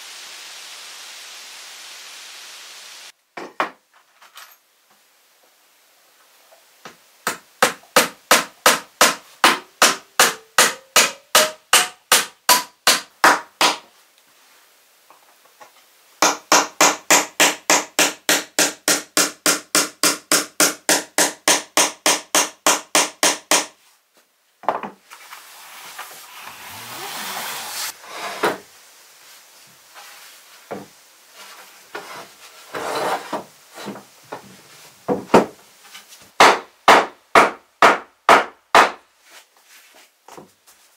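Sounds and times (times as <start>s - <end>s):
hammer driving nails into wood: 7.3s - 13.8s, 16.2s - 23.8s, 36.4s - 39.0s
scraping rub: 25.1s - 28.4s, 31.3s - 34.0s.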